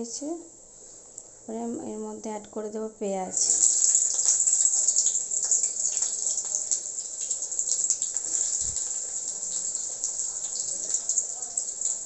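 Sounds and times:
onion sizzling in hot oil: 0:03.3 - 0:12.0.

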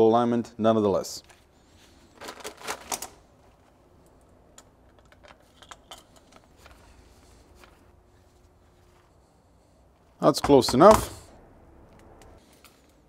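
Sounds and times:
plastic packaging rustling: 0:01.4 - 0:03.7
metal parts clicking on workbench: 0:04.5 - 0:06.5.

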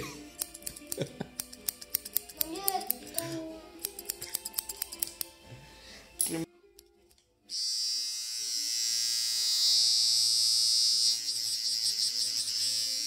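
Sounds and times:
electric hair clipper buzzing: 0:07.5 - 0:13.0.

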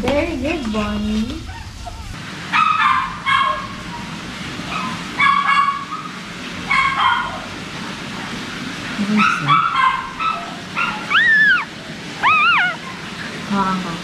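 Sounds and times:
puppy yelping: 0:01.4 - 0:07.5, 0:09.2 - 0:13.1.

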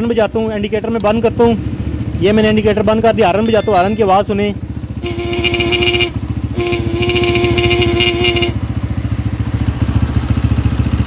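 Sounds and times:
motorcycle engine idling: 0:00.0 - 0:11.0
motorcycle horn: 0:04.9 - 0:08.8.

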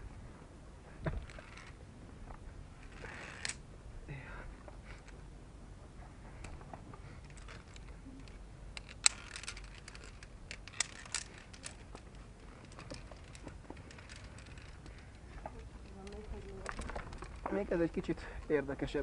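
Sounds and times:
carabiners clinking on steel cable: 0:01.2 - 0:01.8, 0:02.8 - 0:03.6, 0:07.2 - 0:17.8.

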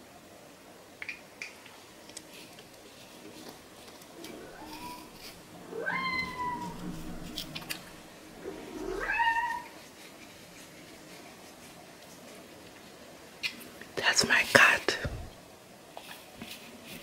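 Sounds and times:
cat meowing: 0:04.2 - 0:09.8.

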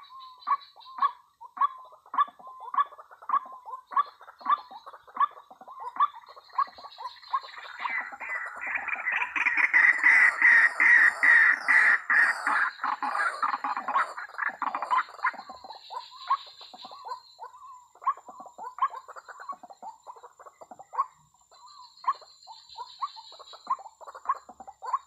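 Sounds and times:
bird rough repeated calls: 0:06.0 - 0:18.2.

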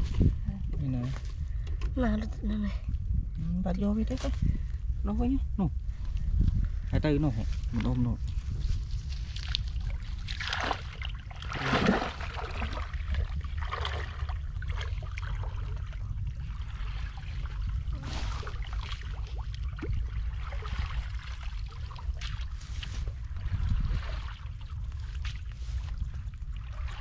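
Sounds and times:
steady low rumble: 0:00.0 - 0:27.0
water sloshing and splashing: 0:07.5 - 0:27.0.

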